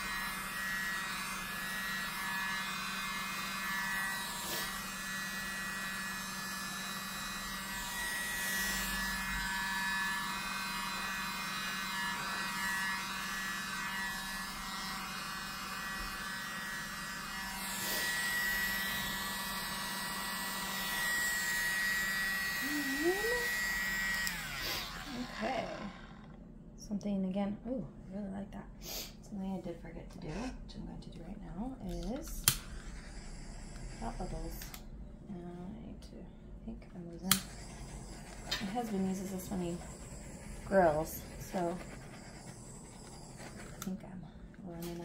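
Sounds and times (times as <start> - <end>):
electric leaf blower whining: 0.0 - 26.4, 37.3 - 44.0.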